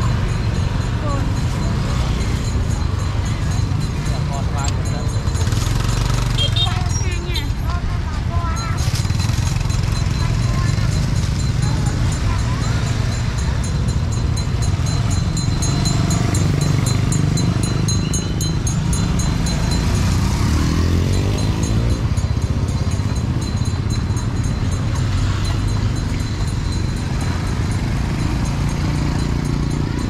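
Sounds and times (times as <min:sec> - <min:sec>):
motorbike engines running: 0:00.0 - 0:30.0
engine revving up: 0:19.4 - 0:22.2.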